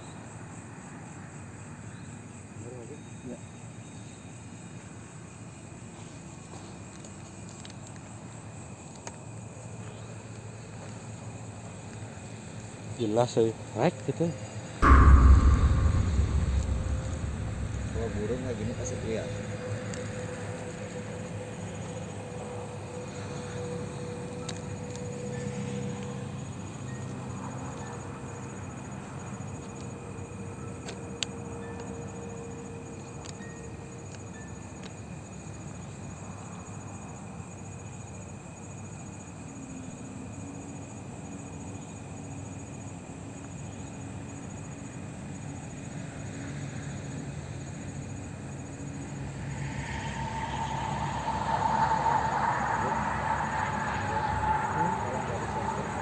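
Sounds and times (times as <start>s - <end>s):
steady high hum: 14.8s - 22.2s, 48.8s - 56.0s
low rumble: 14.8s - 22.6s, 48.7s - 56.0s
night insects chirping: 48.2s - 56.0s.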